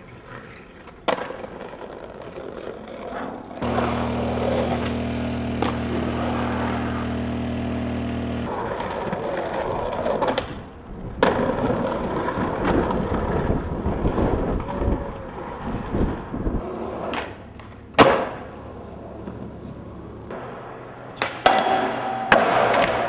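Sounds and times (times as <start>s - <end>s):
skateboard clacking on ground: 0.0s - 3.9s, 8.5s - 15.6s, 16.6s - 23.0s
skateboard wheels rolling on pavement: 0.0s - 21.4s
steady low hum: 3.6s - 8.5s.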